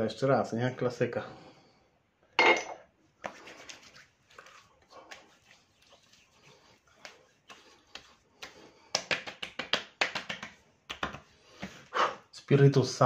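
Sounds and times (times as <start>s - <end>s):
palms slapping cheeks: 3.2s - 11.8s.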